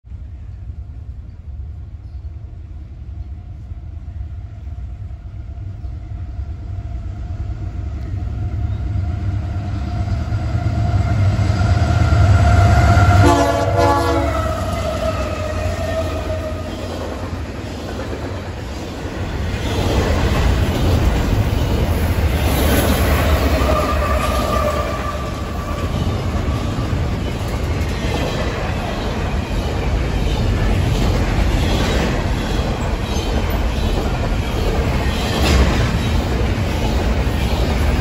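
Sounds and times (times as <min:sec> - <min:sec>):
locomotive air horn: 0:12.2 - 0:16.7
train wheels clattering on rails: 0:14.2 - 0:38.0.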